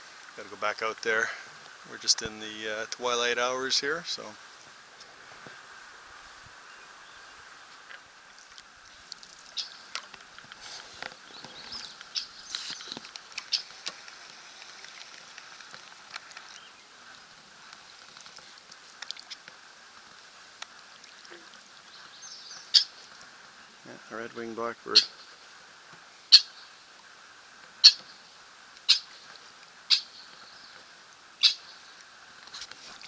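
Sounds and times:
bird chirps: 9.5 - 9.9, 11.2 - 13.7, 21.9 - 22.9, 24.9 - 25.3, 29.9 - 30.8, 31.4 - 31.8
bird trilled call: 9.5 - 9.9, 11.2 - 12.9, 22.2 - 23.0, 24.9 - 25.3, 26.3 - 26.7, 27.8 - 28.1, 28.9 - 29.2, 29.9 - 30.3, 31.4 - 31.8.

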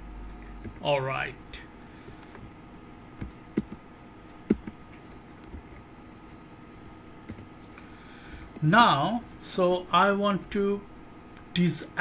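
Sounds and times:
faint steady hum: 0.0 - 12.0
computer keyboard key presses: 3.2 - 3.8, 4.5 - 4.8, 7.3 - 7.5.

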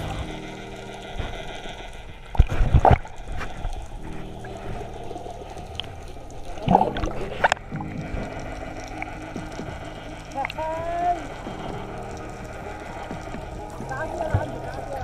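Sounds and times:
water splashing and churning: 0.0 - 15.0
low hum of held tones: 3.8 - 15.0.

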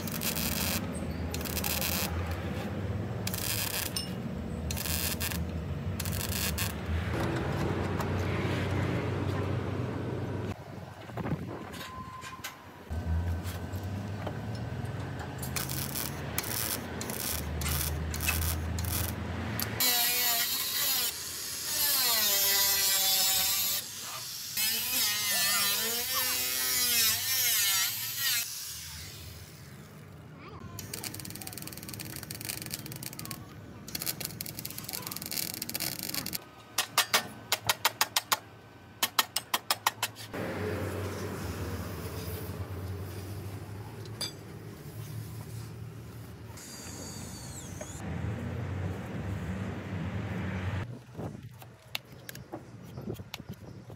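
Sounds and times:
welding arc crackling: 0.0 - 2.4, 3.2 - 4.0, 4.7 - 6.9, 15.4 - 23.8, 30.8 - 36.4
welder electrical hum: 0.0 - 4.1, 4.7 - 7.1, 15.4 - 21.1
sharp metallic clicks: 30.8 - 40.2.

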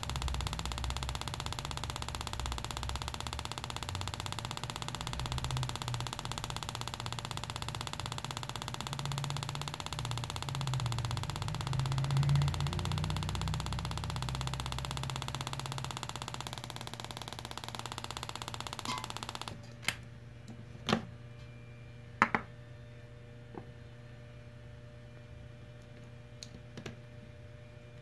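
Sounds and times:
crackling buzz of sparks: 0.0 - 19.6
sharp clicks and knocks: 0.0 - 20.0.

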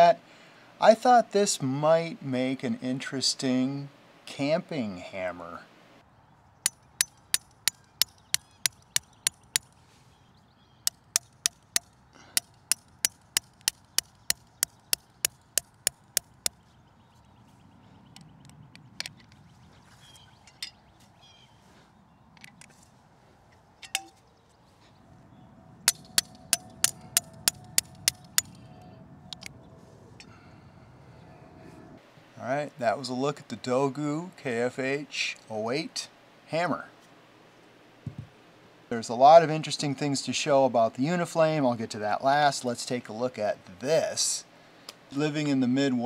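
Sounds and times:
hammer striking metal stake: 6.6 - 9.7, 10.8 - 16.6, 25.9 - 28.6.

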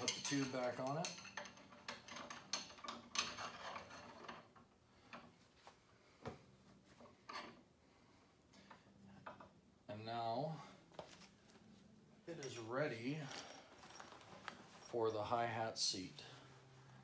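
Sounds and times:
metal rubbing and scraping: 0.0 - 4.6.

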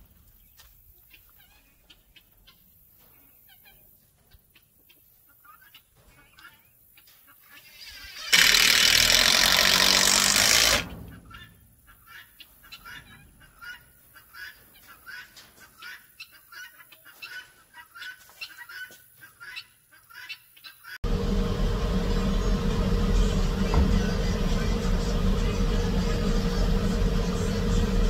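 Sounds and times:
chickens clucking: 0.0 - 8.3, 10.8 - 21.0
cordless drill running: 8.2 - 10.9.

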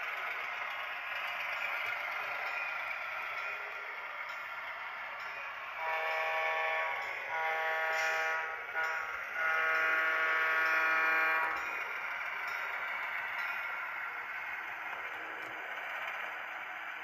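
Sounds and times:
model locomotive air horn blasts: 5.7 - 11.7.

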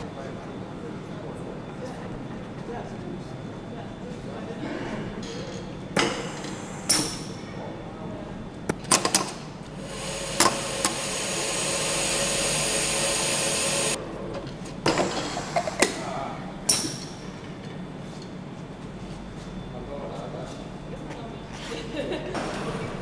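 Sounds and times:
machine hiss: 6.0 - 7.4, 9.7 - 14.0, 14.9 - 16.0.

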